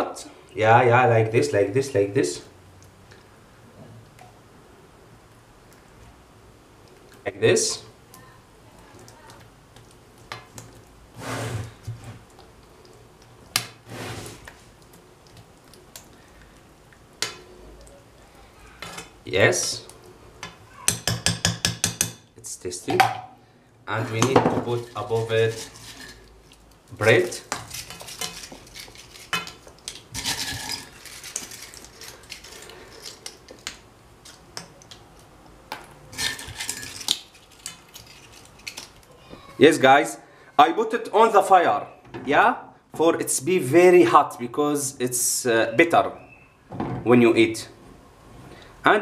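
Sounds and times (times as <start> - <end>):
spoon scraping yogurt: 24.8 - 33.6.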